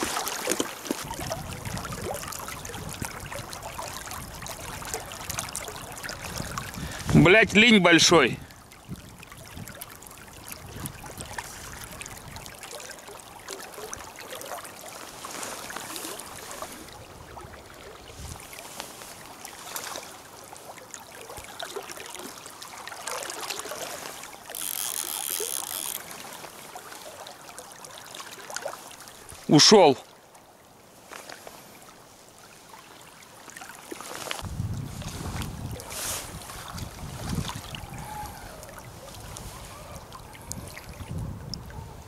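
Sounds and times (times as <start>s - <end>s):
small splashes and clicks: 0.0s - 7.2s, 8.5s - 16.8s, 18.4s - 29.4s
river water flowing: 0.0s - 42.0s.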